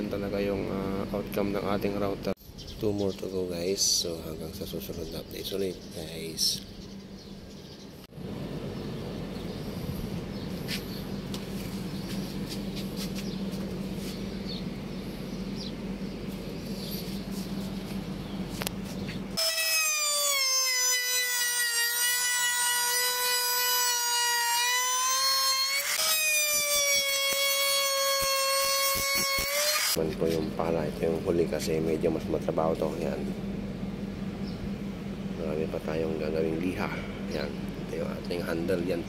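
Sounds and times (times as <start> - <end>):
steady low hum: 0.0 - 19.4, 29.9 - 39.0
trim router whining: 19.4 - 30.0.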